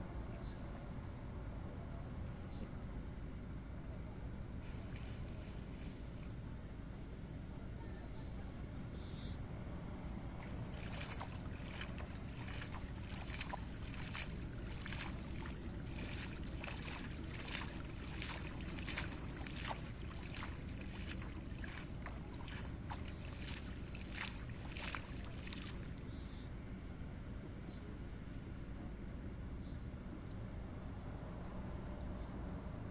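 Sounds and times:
low background noise: 0.0s - 32.9s
net splashing through water: 10.4s - 25.8s.

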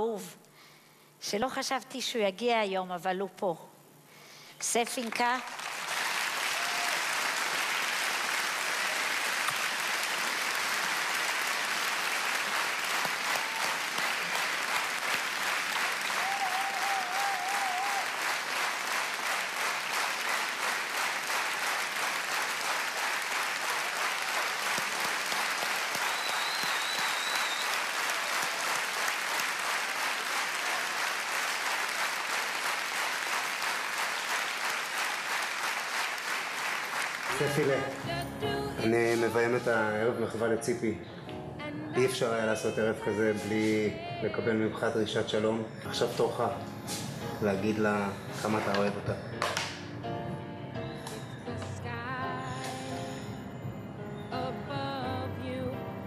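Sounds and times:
audience clapping: 4.9s - 38.1s, 48.4s - 49.8s.

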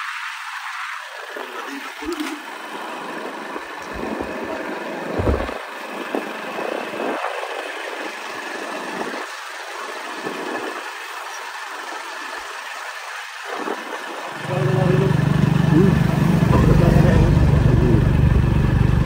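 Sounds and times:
motorcycle engine running: 1.1s - 19.0s
wind buffeting microphone: 1.2s - 9.4s.

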